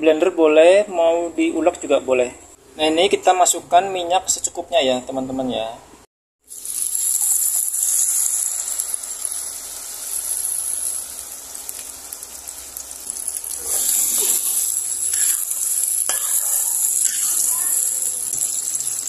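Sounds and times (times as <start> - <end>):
spice paste sizzling in oil: 6.4 - 19.0
metal spatula stirring: 13.2 - 19.0.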